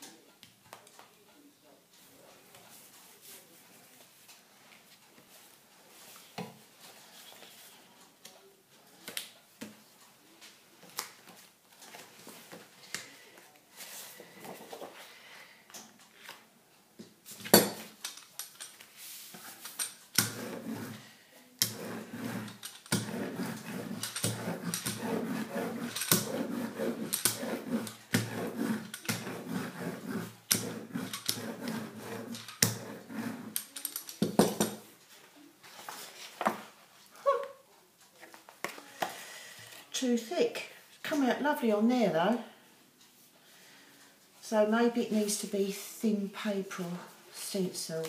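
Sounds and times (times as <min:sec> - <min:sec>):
brayer rolling over paper: 0:19.0 - 0:34.8.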